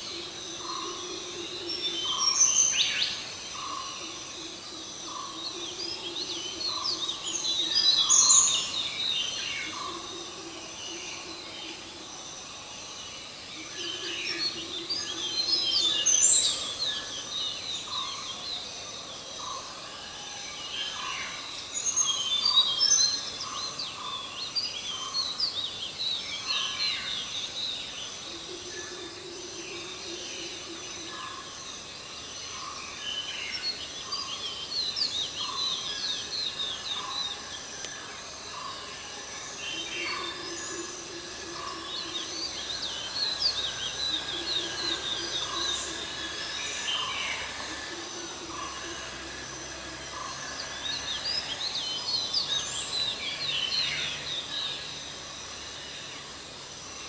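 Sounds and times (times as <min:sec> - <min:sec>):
low steady drone: 0:27.6 - 0:57.0.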